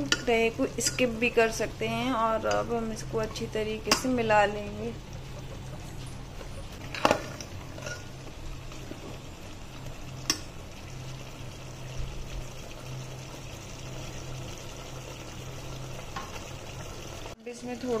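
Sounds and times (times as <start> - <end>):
ladle clinking against pot: 6.9 - 8.1.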